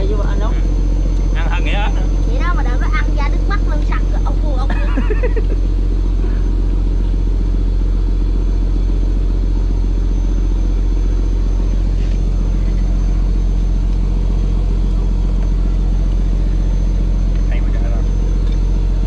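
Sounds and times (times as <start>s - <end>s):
boat diesel engine running: 0.0s - 19.0s.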